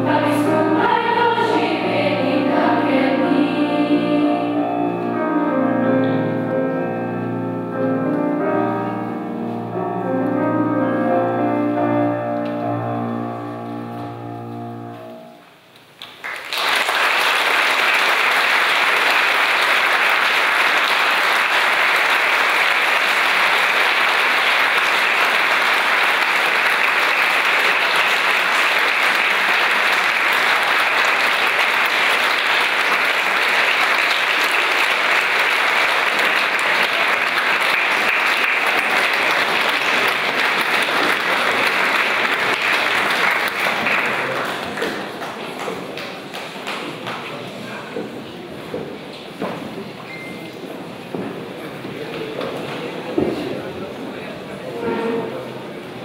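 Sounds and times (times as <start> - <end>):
audience applauding: 16.0 - 47.5.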